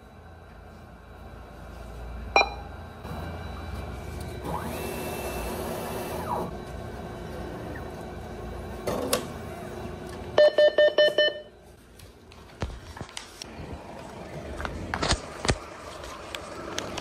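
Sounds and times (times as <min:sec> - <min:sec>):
cash dispenser motor whirring: 0:04.4 - 0:06.6.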